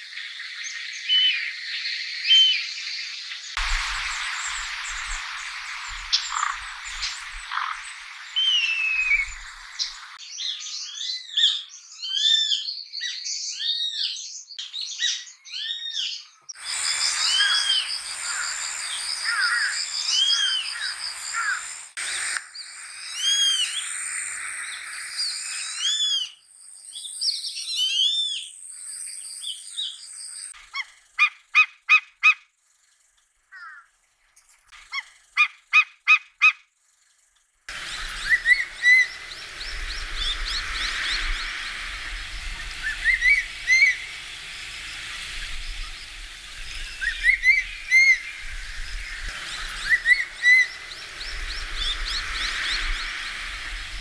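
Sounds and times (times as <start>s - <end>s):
serpent eagle calling: 3.7s - 10.2s, 16.6s - 26.3s, 37.7s - 54.0s
buzzards calling shrilly: 3.8s - 10.2s, 16.6s - 26.3s, 37.7s - 54.0s
eagle barking calls: 4.2s - 10.1s, 16.7s - 22.4s, 37.7s - 54.0s.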